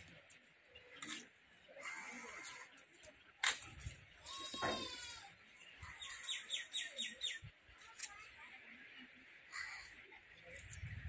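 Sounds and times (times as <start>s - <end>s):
birds calling: 4.2s - 7.5s.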